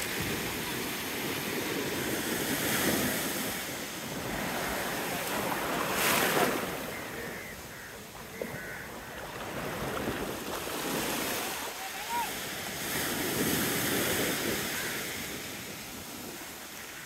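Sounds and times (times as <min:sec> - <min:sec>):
wave breaking: 0:00.0 - 0:06.9, 0:08.6 - 0:14.4
sea surf washing on a beach: 0:00.0 - 0:17.0.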